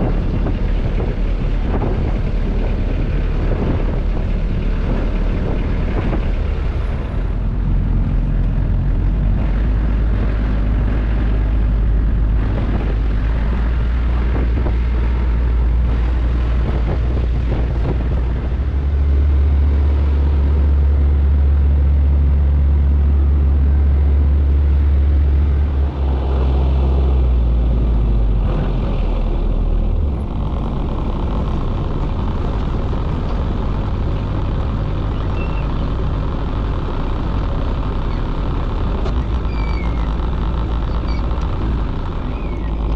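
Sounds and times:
boat engine droning: 0:00.0 - 0:42.9.

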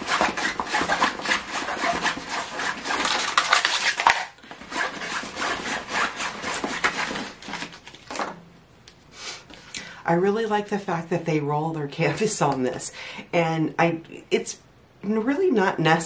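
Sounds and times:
plastic wrap crinkling: 0:07.2 - 0:08.2.

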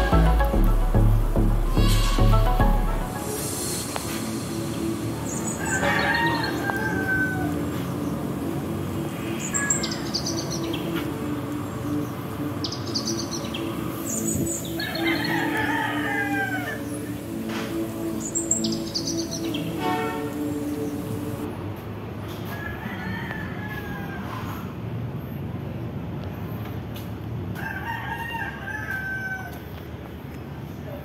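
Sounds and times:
low hum: 0:00.0 - 0:05.8
rooster crowing: 0:05.6 - 0:08.1, 0:14.8 - 0:17.0, 0:22.4 - 0:24.8, 0:27.6 - 0:29.8.

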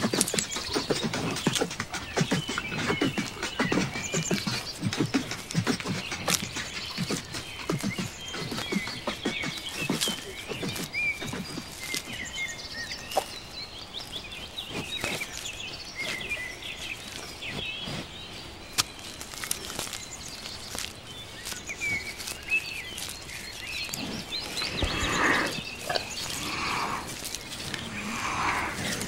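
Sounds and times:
small birds chirping: 0:00.0 - 0:29.0
low animal call: 0:23.9 - 0:29.0.

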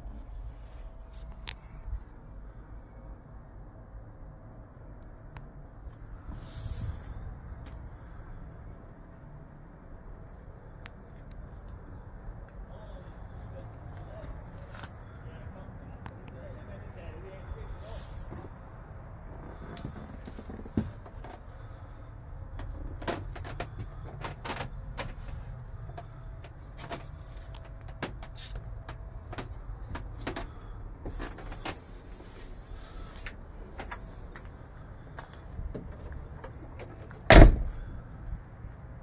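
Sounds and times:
low steady rumble: 0:00.0 - 0:39.0
loud thump: 0:37.3 - 0:37.8.

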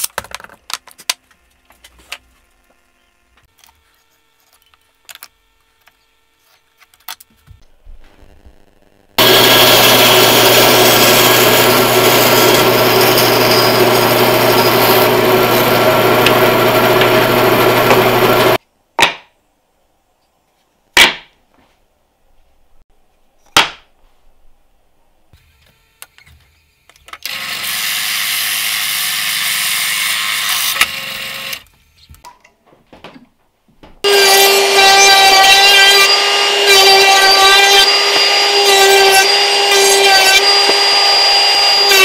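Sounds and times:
bandsaw cutting wood: 0:09.2 - 0:18.6, 0:27.2 - 0:31.6, 0:34.0 - 0:42.0.

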